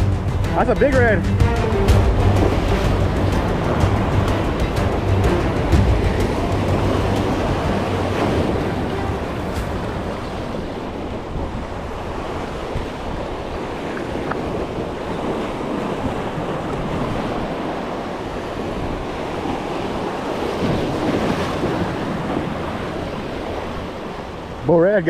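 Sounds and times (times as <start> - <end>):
wind buffeting microphone: 0.0 - 24.6
waves washing against a jetty: 0.0 - 25.0.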